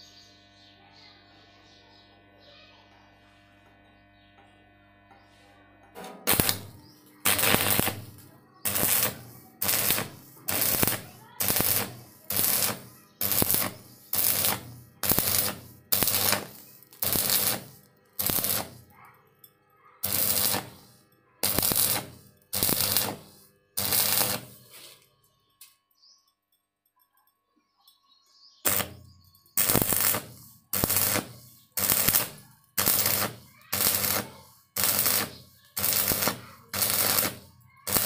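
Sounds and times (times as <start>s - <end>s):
stick welding arc crackling: 4.4s - 19.0s, 20.0s - 25.8s, 28.6s - 38.0s.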